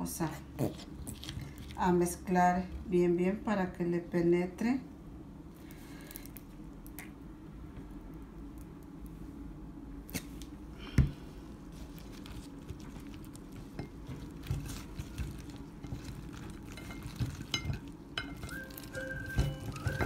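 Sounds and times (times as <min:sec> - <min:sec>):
background music: 0:18.5 - 0:20.0.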